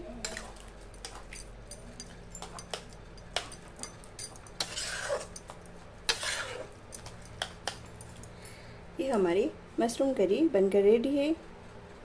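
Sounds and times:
metal spatula clinking on pan: 0:00.2 - 0:08.3
spatula scraping pan: 0:04.5 - 0:05.5, 0:06.1 - 0:06.8.

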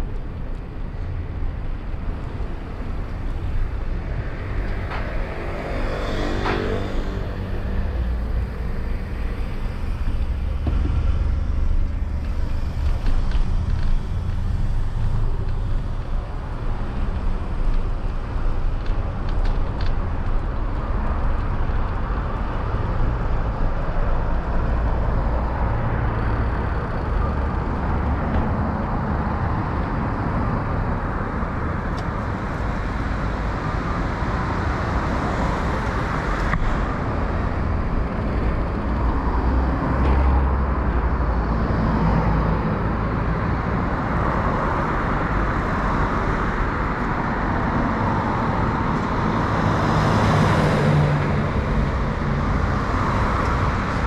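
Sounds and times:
steady low rumble: 0:00.0 - 0:30.8
cars going by: 0:00.0 - 0:54.0.

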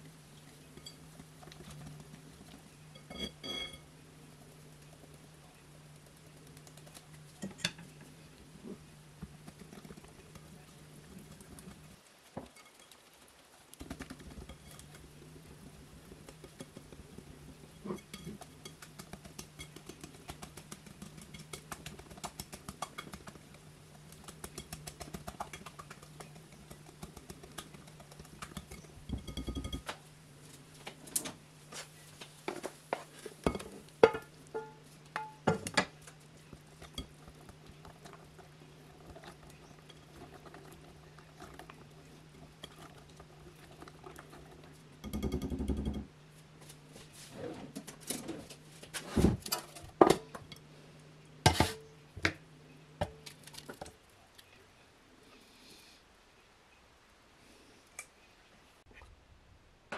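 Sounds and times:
whisk clicking against glass bowl: 0:17.8 - 0:29.9, 0:45.0 - 0:46.1.

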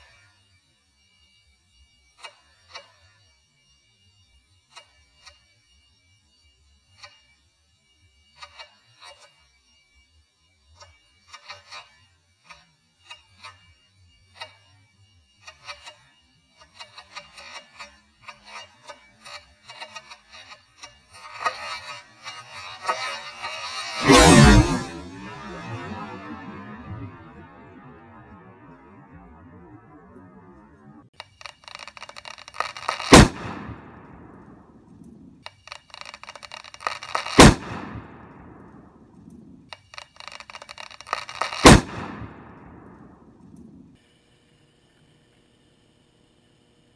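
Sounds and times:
ball bursting with loud bang: 0:24.0 - 0:31.0, 0:32.6 - 0:35.4, 0:36.7 - 0:39.6, 0:41.0 - 0:43.9
sharp clicks: 0:28.0 - 0:43.7.

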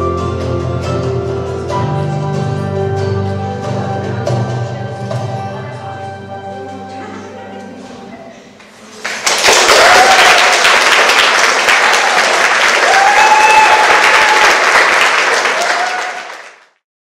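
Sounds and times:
audience applauding: 0:08.9 - 0:16.8.

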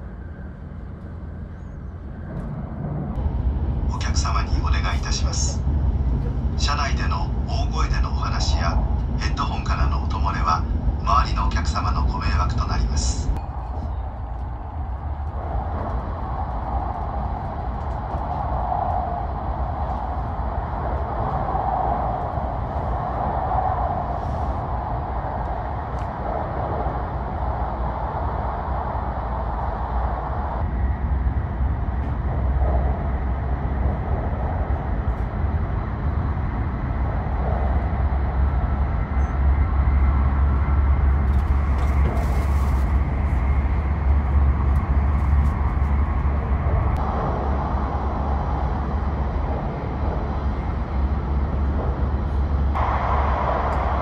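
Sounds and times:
train rumbling in tunnel: 0:00.0 - 0:54.0.

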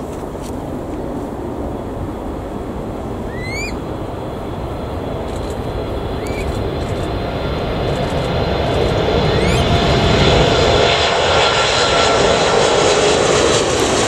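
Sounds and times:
jet engines rumbling: 0:00.0 - 0:14.0
bird whistled call: 0:03.3 - 0:03.8, 0:06.2 - 0:06.6, 0:09.3 - 0:09.7.

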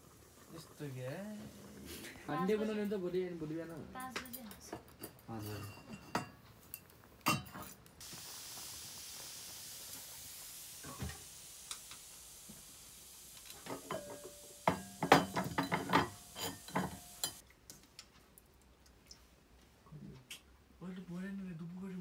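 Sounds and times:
food sizzling in hot oil: 0:00.0 - 0:03.7, 0:08.0 - 0:17.4
steel pots and utensils clanking: 0:04.4 - 0:07.9, 0:13.5 - 0:17.4.

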